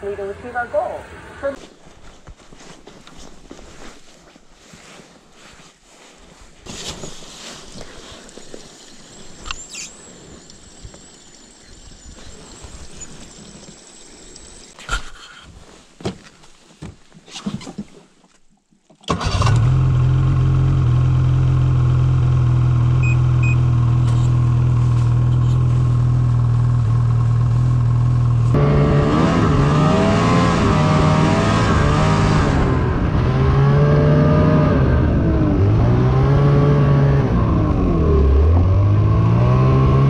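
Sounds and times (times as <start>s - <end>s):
snowmobile engine idling and revving: 19.3s - 40.0s.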